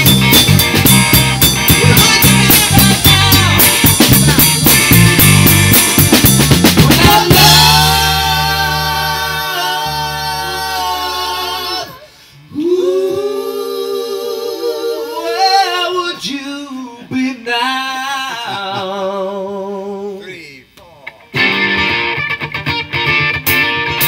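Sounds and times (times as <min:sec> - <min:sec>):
band chord ringing: 0:00.0 - 0:09.3
held electric bass note: 0:00.0 - 0:11.9
voices singing in harmony: 0:01.8 - 0:04.2, 0:06.8 - 0:20.4.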